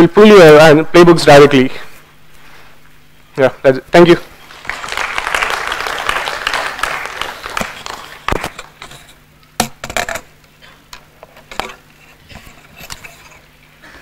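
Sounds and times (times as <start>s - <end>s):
applause: 4.5s - 8.8s.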